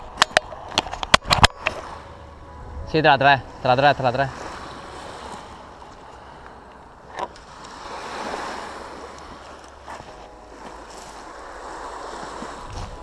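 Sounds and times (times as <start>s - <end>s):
waves washing on shingle beach: 3.6s - 13.0s.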